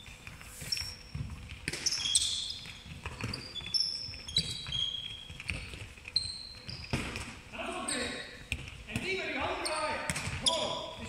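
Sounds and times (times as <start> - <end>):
handball bouncing: 0.0 - 7.4, 8.4 - 9.2
sneakers squeaking on wooden floor: 0.0 - 11.0.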